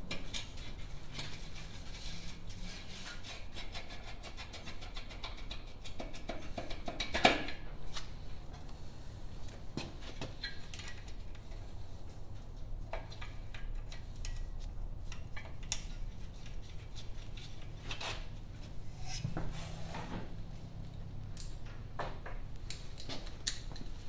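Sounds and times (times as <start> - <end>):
steady low hum: 11.4 - 24.0
metal muffler scraping and clicking: 15.2 - 21.2.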